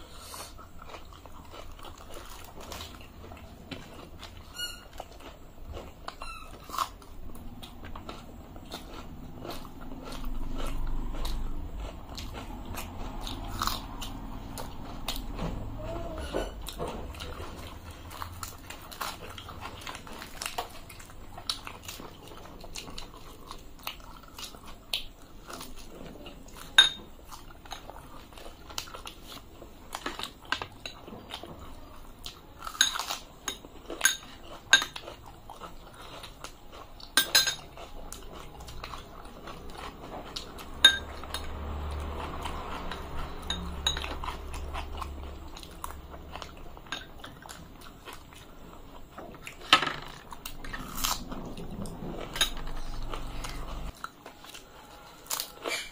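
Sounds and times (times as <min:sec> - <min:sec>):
chewing: 0:00.0 - 0:55.9
spoons clinking on glass bowls: 0:26.8 - 0:27.0, 0:37.2 - 0:37.6, 0:40.8 - 0:41.1.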